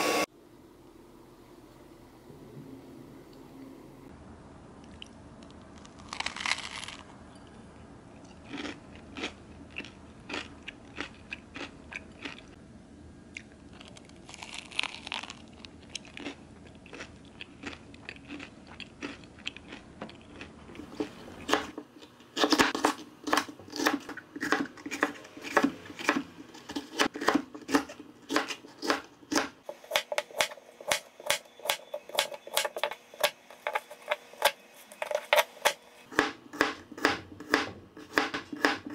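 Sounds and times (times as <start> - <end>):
chewing crusty pastry: 4.8 - 7.1, 8.2 - 12.6, 13.3 - 21.7
knife chopping on plastic board: 22.4 - 38.9.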